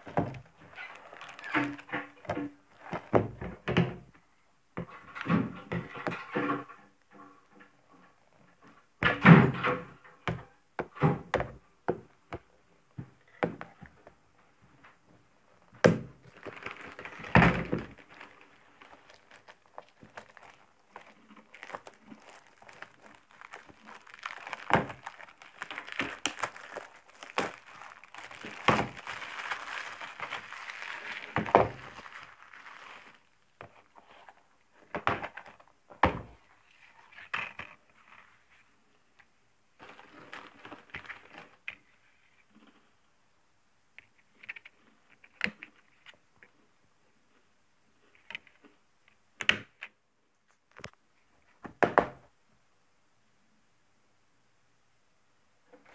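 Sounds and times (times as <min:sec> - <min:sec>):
plastic wrap crinkling: 0:00.0 - 0:03.2, 0:15.5 - 0:34.5, 0:39.8 - 0:41.7.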